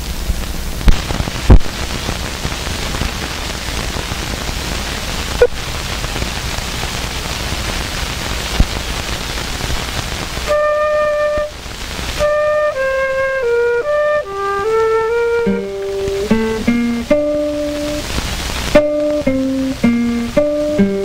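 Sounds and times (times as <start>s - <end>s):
sharp pops: 0.0s - 13.5s, 14.2s - 21.0s
film soundtrack hiss and hum: 0.0s - 21.0s.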